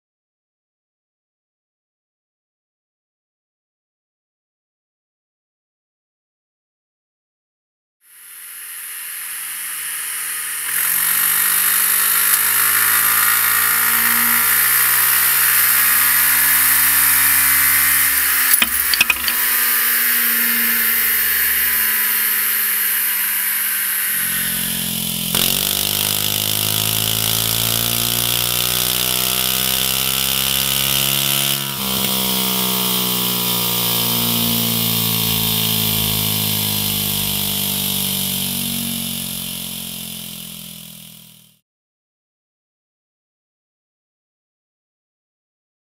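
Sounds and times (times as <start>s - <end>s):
scooter engine revving: 10.7s - 41.6s.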